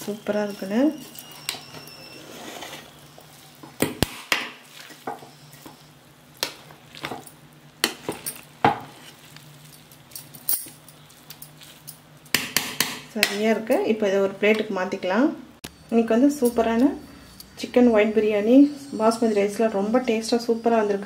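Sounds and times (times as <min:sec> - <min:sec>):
ladle scraping metal pot: 0:00.0 - 0:03.5
rice rustling: 0:00.0 - 0:03.8, 0:04.5 - 0:12.3.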